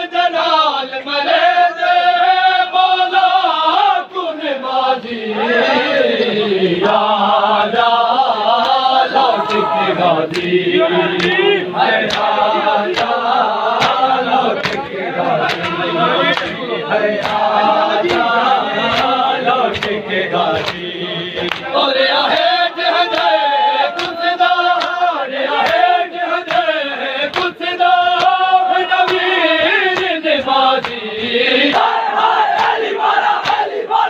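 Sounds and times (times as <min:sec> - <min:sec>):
men chanting in unison: 0:00.0 - 0:34.0
hands slapping chests: 0:08.6 - 0:21.7, 0:23.1 - 0:25.0, 0:25.6 - 0:28.4, 0:29.0 - 0:33.8.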